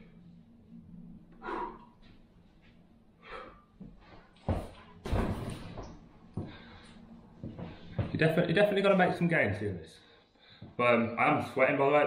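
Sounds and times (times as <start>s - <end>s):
man breathing hard: 1.3s - 2.2s, 3.1s - 4.4s
dumbbells thudding on wooden floor: 4.5s - 5.9s.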